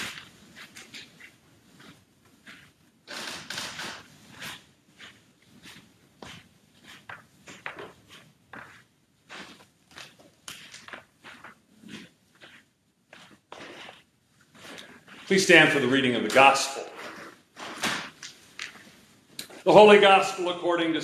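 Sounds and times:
cloth swishing: 0:00.0 - 0:02.8, 0:04.0 - 0:17.5
shuffling footsteps: 0:00.0 - 0:21.0
paper rustling: 0:02.4 - 0:19.0.

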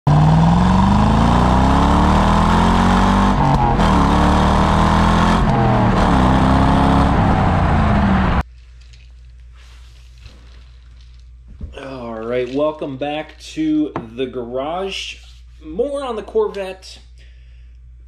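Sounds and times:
car engine accelerating: 0:00.1 - 0:08.4.

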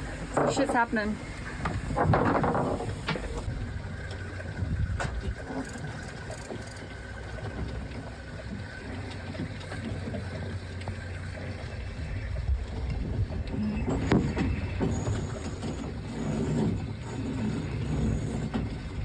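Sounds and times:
wind buffeting microphone: 0:01.5 - 0:05.5, 0:11.7 - 0:16.0.

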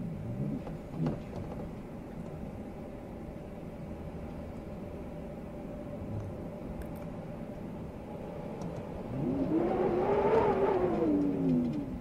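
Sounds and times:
blizzard wind howling: 0:00.0 - 0:12.0.

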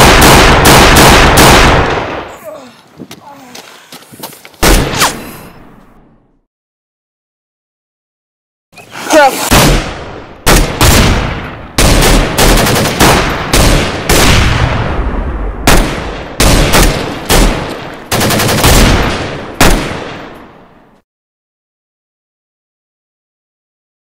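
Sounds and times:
gunshots with echoing tail: 0:00.0 - 0:02.3, 0:04.6 - 0:05.7, 0:09.5 - 0:20.8.

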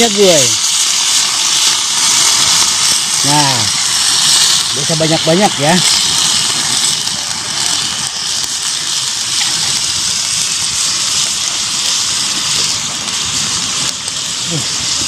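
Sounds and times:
meat sizzling in a pan: 0:00.0 - 0:15.0.

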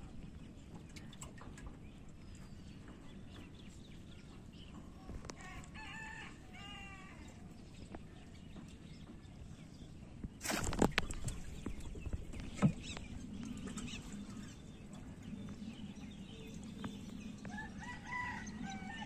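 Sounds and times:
faint rooster crowing: 0:05.3 - 0:07.4, 0:17.4 - 0:19.0.

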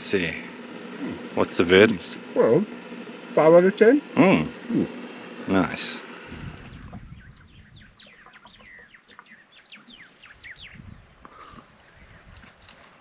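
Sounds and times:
birds chirping: 0:00.0 - 0:12.4
low rumble: 0:06.3 - 0:08.8.

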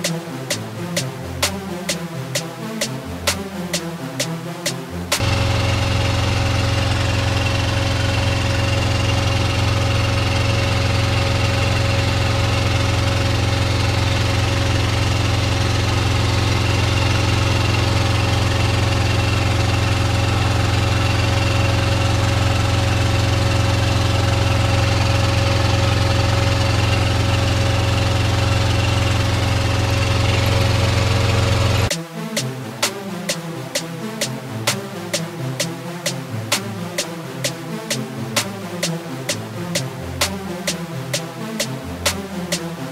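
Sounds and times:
engine idling: 0:05.1 - 0:31.9.

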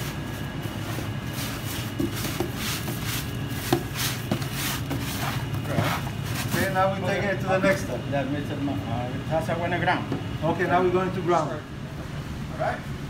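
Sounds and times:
raw meat slapping and rustling: 0:00.0 - 0:06.7
steady low hum: 0:00.0 - 0:13.0.

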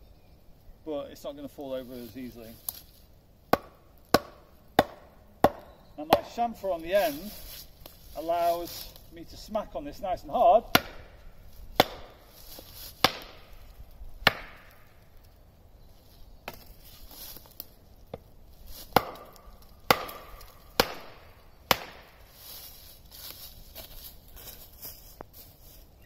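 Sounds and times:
wooden knocks on a stake: 0:03.5 - 0:06.3, 0:10.7 - 0:11.1, 0:11.8 - 0:13.4, 0:14.2 - 0:14.8, 0:18.9 - 0:21.0.

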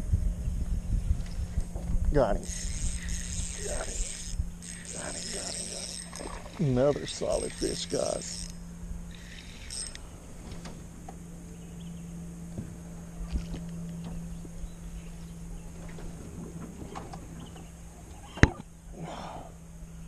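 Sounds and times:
steady low hum: 0:00.0 - 0:20.0
fishing reel clicking: 0:02.4 - 0:10.0.

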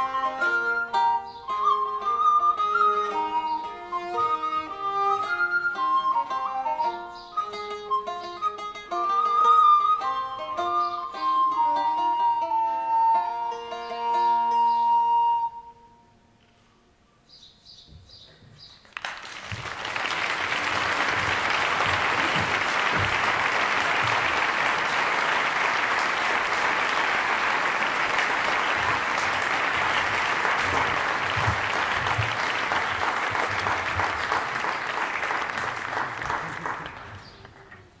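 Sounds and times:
audience applauding: 0:18.9 - 0:37.8.

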